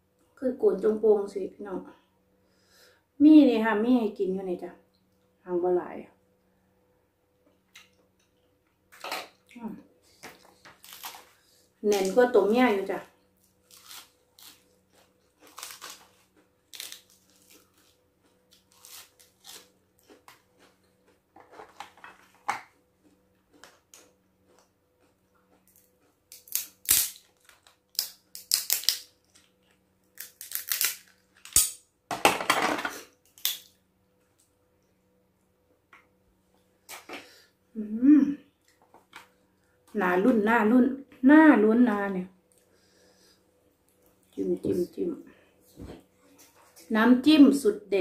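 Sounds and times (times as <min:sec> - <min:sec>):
crab shell cracking: 0:13.6 - 0:20.4, 0:25.6 - 0:31.8, 0:33.2 - 0:33.8.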